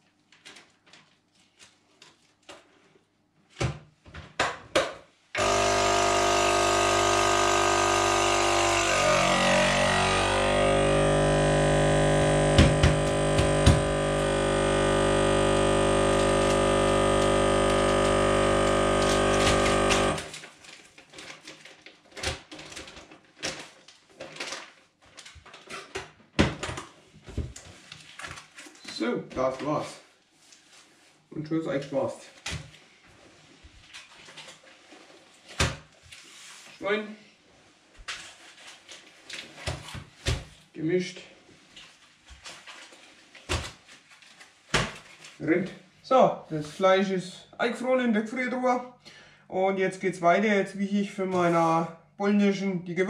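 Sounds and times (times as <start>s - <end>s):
vacuum sealer pump running: 5.4s - 20.4s.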